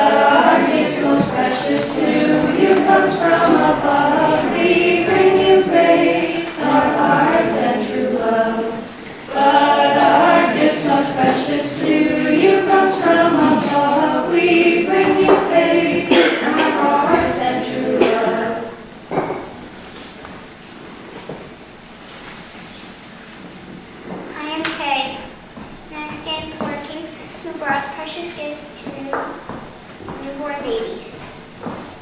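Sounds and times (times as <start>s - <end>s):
children singing a carol: 0.0s - 19.0s.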